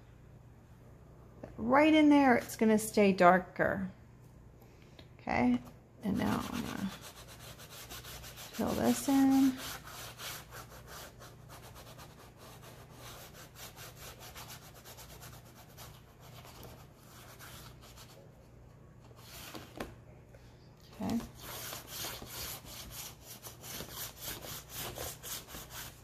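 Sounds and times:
chalk scratching on board: 0:06.1 - 0:18.2, 0:21.1 - 0:26.0.

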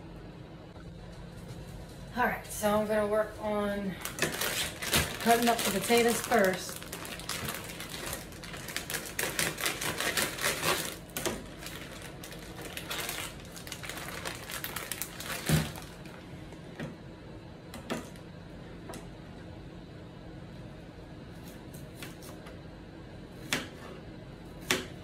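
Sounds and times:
plastic bag crinkling: 0:04.0 - 0:16.2.

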